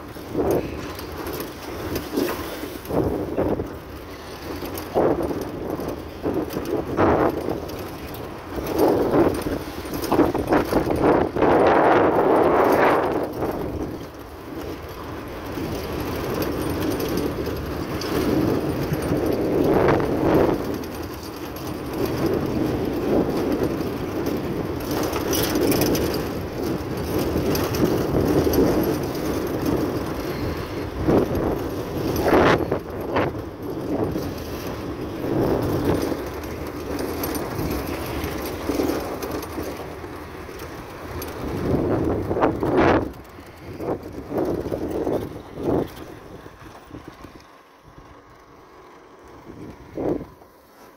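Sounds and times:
tyres rumbling on gravel: 0.0 - 50.9
rattles and knocks: 12.4 - 47.4.

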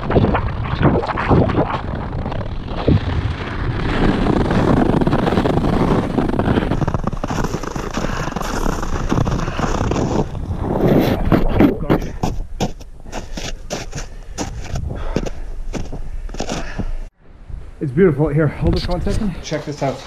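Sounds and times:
wind buffeting microphone: 0.0 - 19.4
ice skates scraping on ice: 2.8 - 16.9.

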